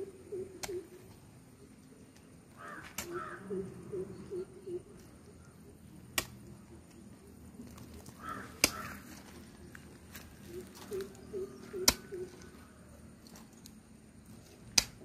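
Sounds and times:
bird calling: 0.0 - 13.0
hoe striking soil: 8.2 - 9.1, 14.3 - 15.0.

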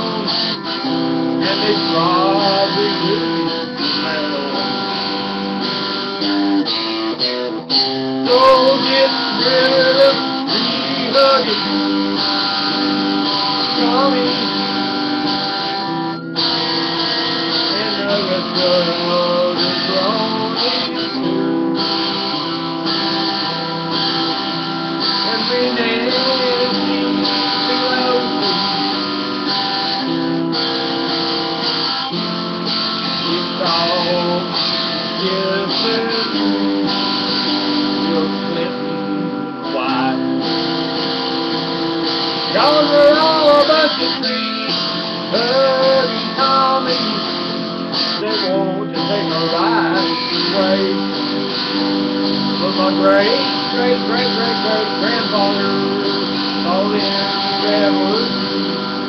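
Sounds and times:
electric guitar chords: 0.0 - 59.0.

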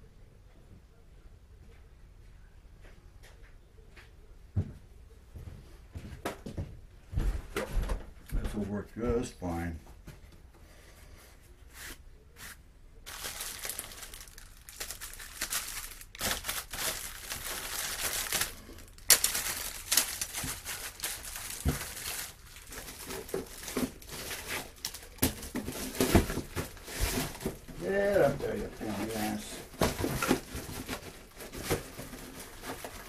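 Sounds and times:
packaging crinkling: 13.0 - 33.0.

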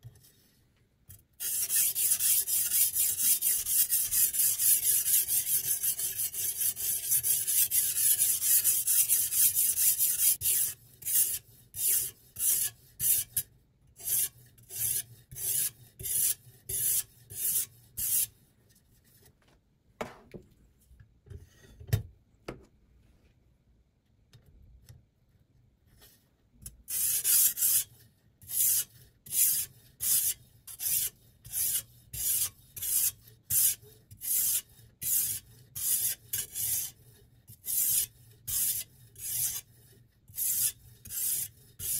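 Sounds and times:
sharpening stone scraping knife: 1.4 - 18.3, 26.9 - 41.9.

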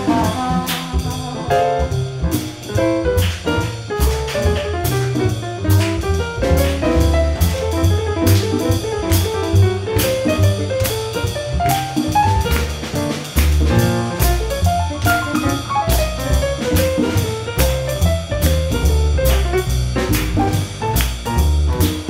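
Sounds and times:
drum kit: 0.0 - 22.0
jazz piano: 0.0 - 22.0
upright bass: 0.0 - 22.0.

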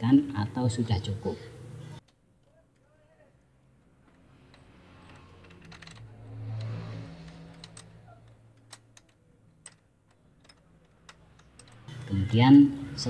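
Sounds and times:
low hum: 3.8 - 9.8
metallic clicks and taps of spanner: 4.0 - 12.1.

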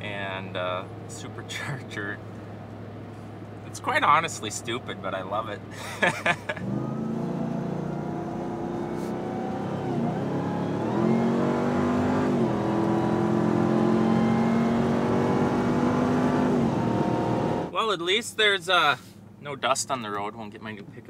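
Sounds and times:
truck engine accelerating: 5.7 - 17.7.

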